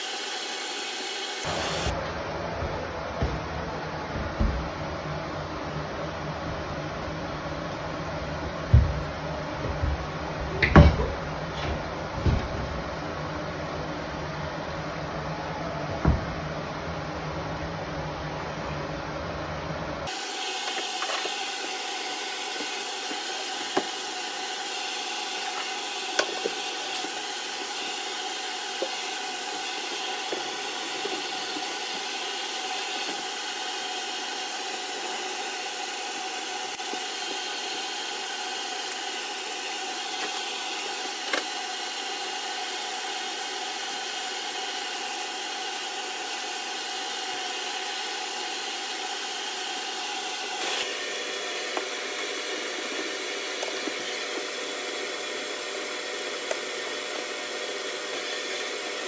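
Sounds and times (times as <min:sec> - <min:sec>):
mechanical whir and hiss: 0:00.0 - 0:02.1.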